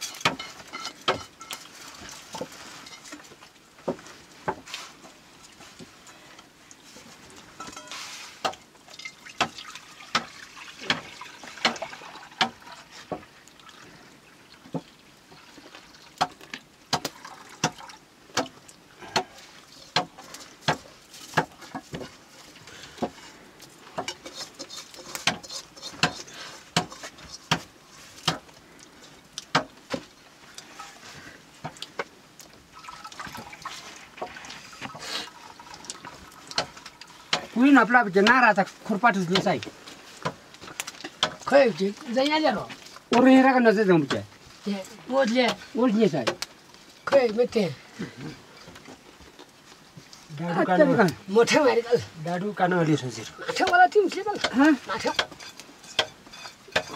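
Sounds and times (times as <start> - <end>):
steel bowl clinking and knocking: 0.0 - 1.8, 7.6 - 12.7, 53.5 - 56.9
liquid splashing and trickling: 0.0 - 56.9.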